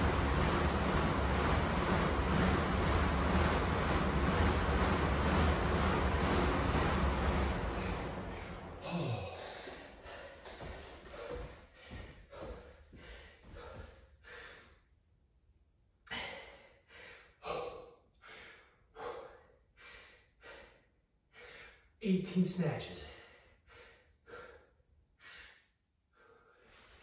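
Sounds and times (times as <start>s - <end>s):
bike fan whirring down: 0.0s - 13.8s
man breathing hard: 8.2s - 14.9s, 16.1s - 22.0s, 23.0s - 27.0s.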